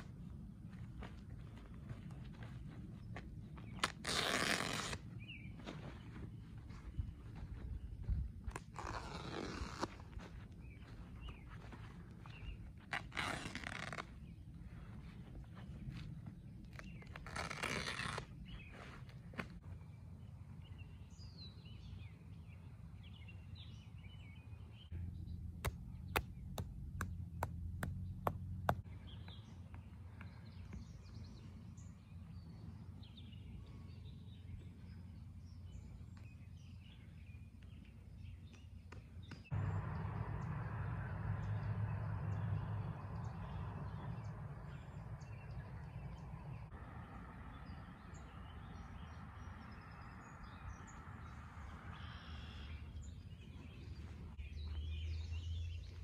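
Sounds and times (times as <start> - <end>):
birds chirping: 0.0 - 56.0
distant machinery rumble: 39.5 - 56.0.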